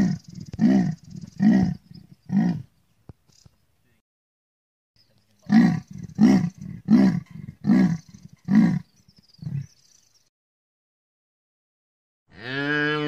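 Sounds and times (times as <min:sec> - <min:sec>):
big cat roaring: 0:00.0 - 0:02.7, 0:05.5 - 0:08.8.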